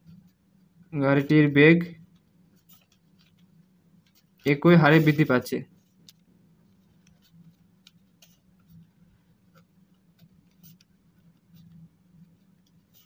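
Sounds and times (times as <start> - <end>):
faint low hum: 0.0 - 13.0
pen scratching on paper: 6.7 - 13.0.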